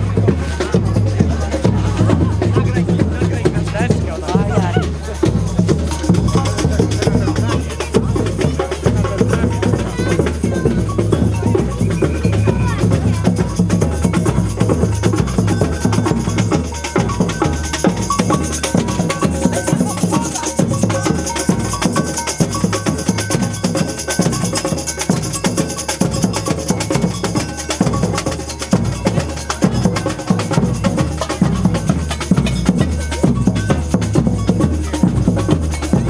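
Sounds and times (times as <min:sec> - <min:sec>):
stepping bass line: 0:00.0 - 0:23.7
fast percussion beat: 0:00.0 - 0:36.0.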